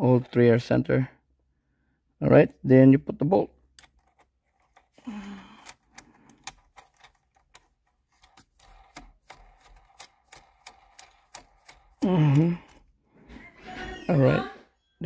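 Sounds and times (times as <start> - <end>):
ratchet clicking: 5.6 - 12.1.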